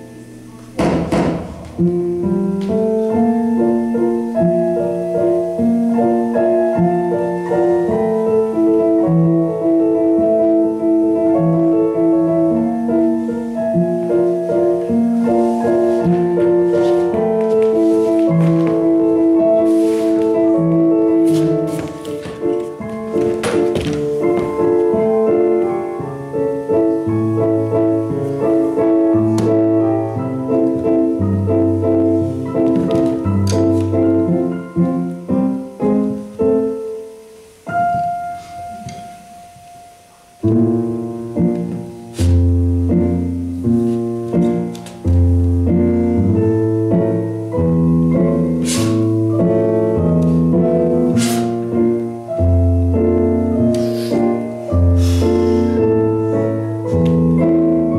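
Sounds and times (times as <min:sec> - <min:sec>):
piano music: 0:00.0 - 0:57.9
sharp knocks: 0:00.8 - 0:01.9.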